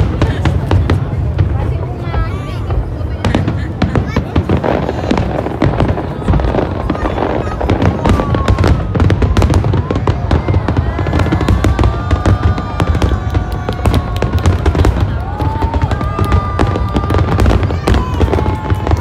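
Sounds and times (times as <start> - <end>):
fireworks rapid bangs and crackling: 0.0 - 19.0.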